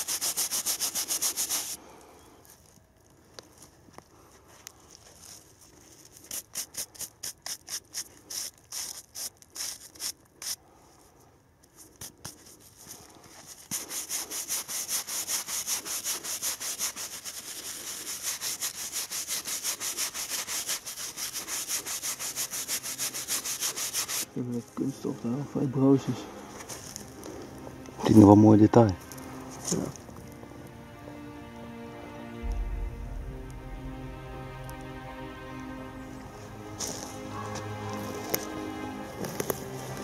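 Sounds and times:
gloved hand rubbing metal: 0:00.0 - 0:01.8, 0:05.9 - 0:10.6, 0:11.6 - 0:24.3.

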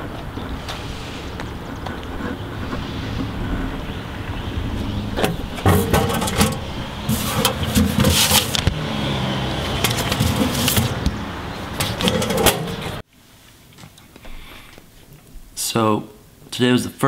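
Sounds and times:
wind buffeting microphone: 0:00.0 - 0:07.8
low outdoor rumble: 0:00.0 - 0:13.0
mailbox opening clicks: 0:05.2 - 0:08.7.

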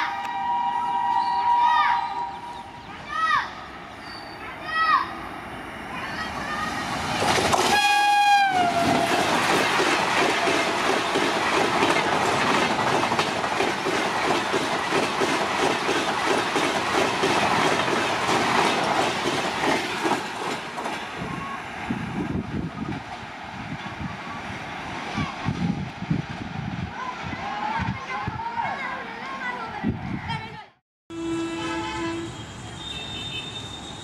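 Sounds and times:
locomotive horn: 0:00.0 - 0:02.8, 0:07.7 - 0:09.4, 0:31.1 - 0:34.0
train wheels clattering on rails: 0:06.9 - 0:21.4.

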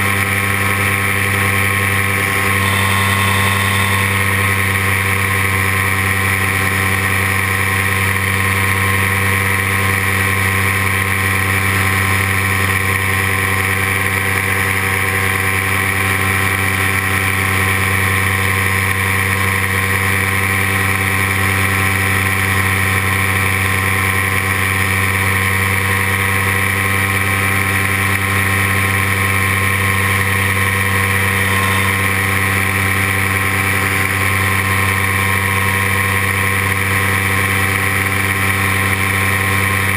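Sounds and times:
paramotor engine droning: 0:00.0 - 0:39.9.

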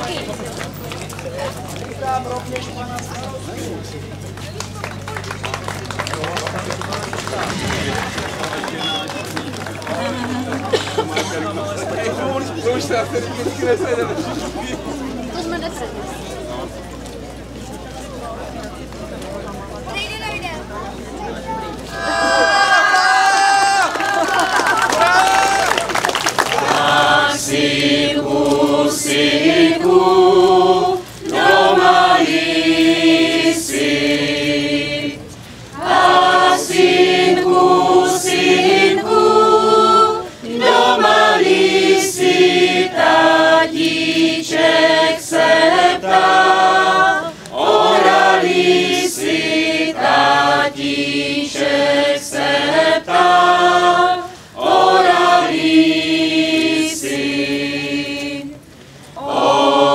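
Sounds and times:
choir singing: 0:07.3 - 0:09.1, 0:26.5 - 0:58.6, 0:59.2 - 0:59.9.

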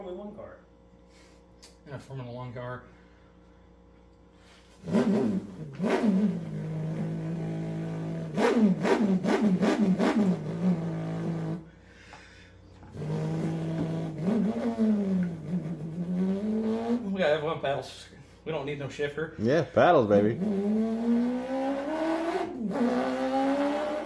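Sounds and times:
man imitating car engine: 0:04.8 - 0:11.6, 0:12.9 - 0:17.5, 0:19.4 - 0:24.0.

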